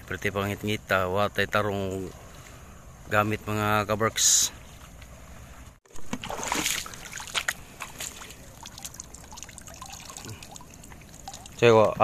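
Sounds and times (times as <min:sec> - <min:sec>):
water splashing and trickling: 0:05.9 - 0:12.0.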